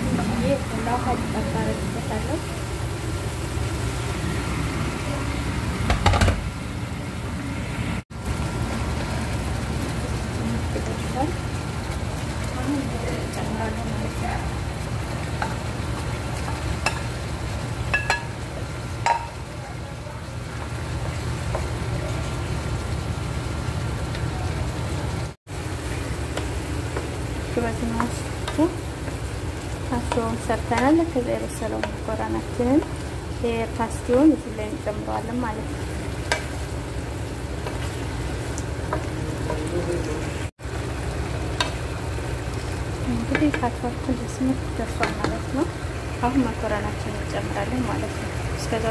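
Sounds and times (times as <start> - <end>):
spoon knocking against plate and pan: 19.0 - 19.4.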